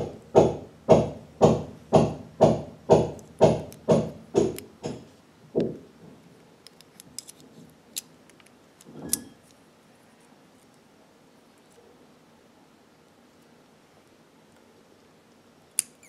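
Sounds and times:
loud knocks: 0:00.0 - 0:05.8.

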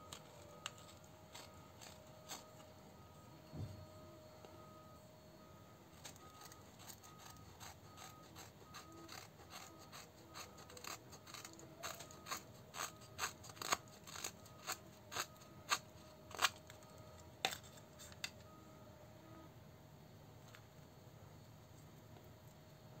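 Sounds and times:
knife shaving wood: 0:00.0 - 0:02.8, 0:05.9 - 0:18.4.

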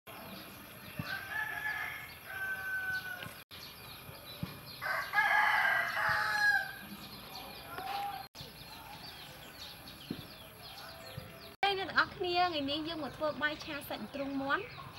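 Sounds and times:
rooster crowing: 0:01.0 - 0:03.4, 0:04.8 - 0:06.9.

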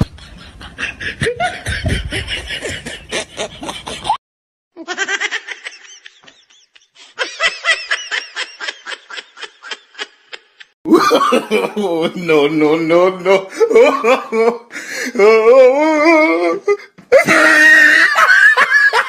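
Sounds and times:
person laughing: 0:00.0 - 0:04.2, 0:04.8 - 0:12.3, 0:13.1 - 0:19.0.

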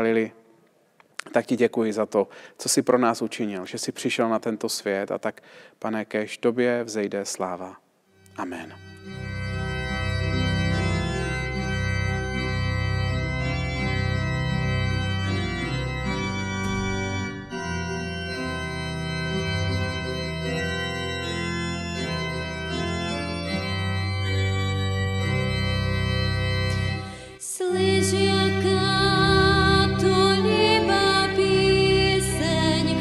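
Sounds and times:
church organ chords: 0:08.1 - 0:33.0.

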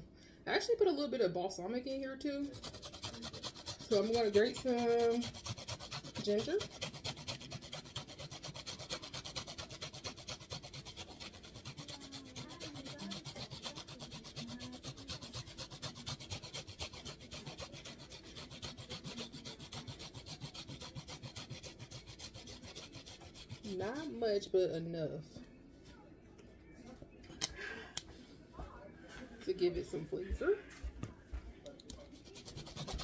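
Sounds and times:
ginger rasping on a grater: 0:02.4 - 0:24.3, 0:32.2 - 0:33.0.

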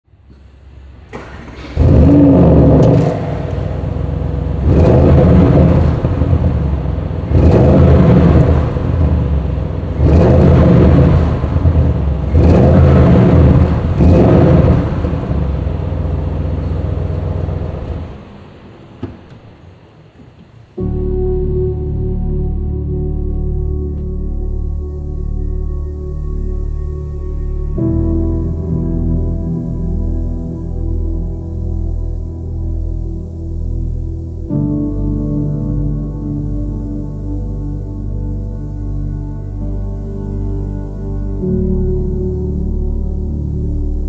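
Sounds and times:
car engine starting and revving: 0:00.3 - 0:19.0.

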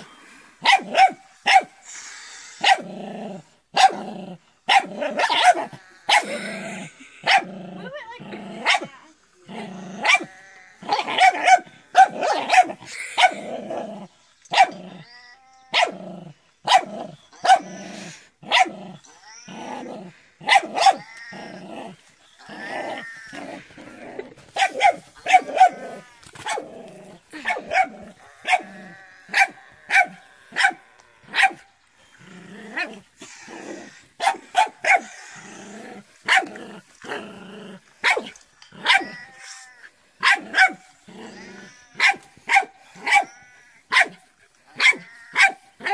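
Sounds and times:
puppy growling: 0:15.8 - 0:30.7, 0:32.0 - 0:39.6, 0:40.3 - 0:43.6
puppy barking in sharp yaps: 0:20.5 - 0:21.1, 0:24.6 - 0:26.6, 0:29.3 - 0:31.6, 0:38.0 - 0:39.6, 0:40.2 - 0:40.8, 0:42.0 - 0:43.3, 0:43.9 - 0:44.2, 0:44.8 - 0:45.9.

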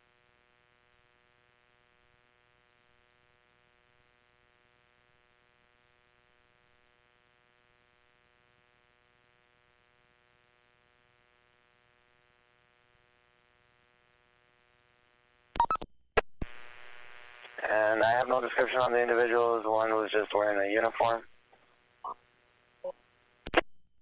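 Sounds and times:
faint electrical hum and hiss: 0:00.0 - 0:15.5, 0:16.4 - 0:23.5
radio transmission clicks: 0:17.4 - 0:21.3.

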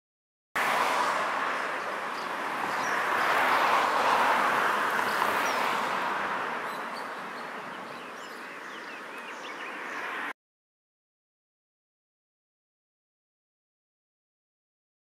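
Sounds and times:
high bird chirps: 0:06.6 - 0:10.3.

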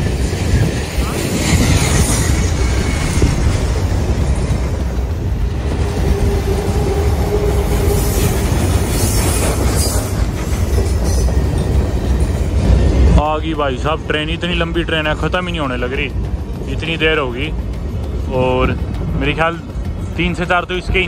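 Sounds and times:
wheels squealing: 0:00.0 - 0:13.1
train wheels rumbling on rail: 0:00.0 - 0:21.0.

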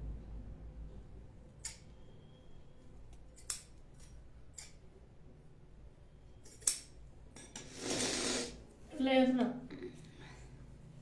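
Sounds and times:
scissors snipping: 0:01.6 - 0:01.9, 0:03.1 - 0:04.8, 0:06.4 - 0:06.9.

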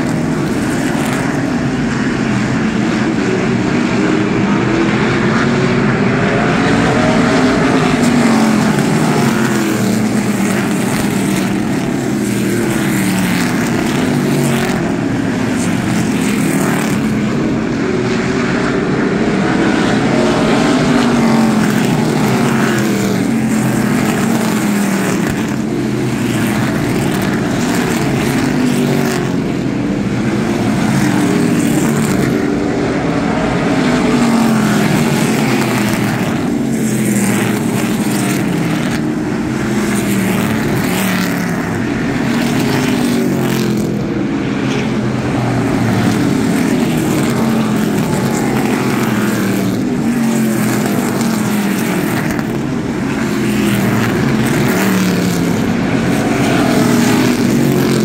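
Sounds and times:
racing car engines: 0:00.0 - 0:58.0.

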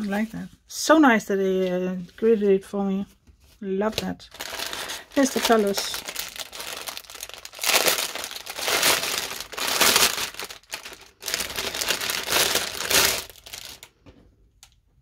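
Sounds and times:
plastic bag crinkling: 0:04.2 - 0:14.0.

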